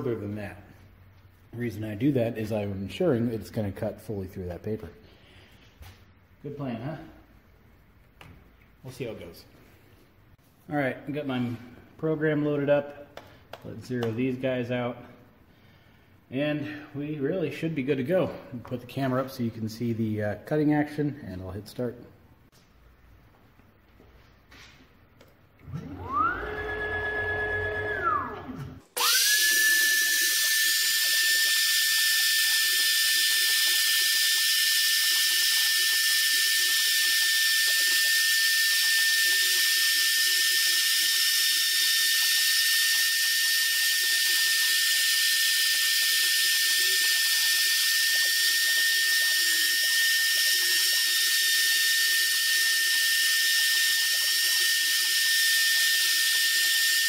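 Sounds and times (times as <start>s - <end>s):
wood router whining: 25.6s - 57.0s.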